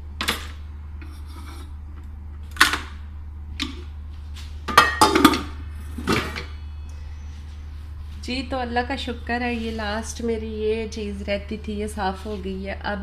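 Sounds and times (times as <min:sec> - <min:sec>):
low hum: 0:00.0 - 0:13.0
dishes clattering in a dish rack: 0:04.7 - 0:05.5.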